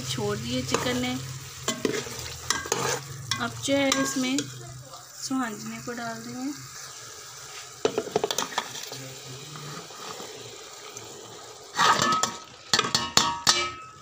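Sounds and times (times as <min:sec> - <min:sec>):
chicken sizzling in oil: 0:00.0 - 0:14.0
metal spoon scraping pot: 0:00.6 - 0:01.1, 0:01.7 - 0:04.6, 0:11.8 - 0:14.0.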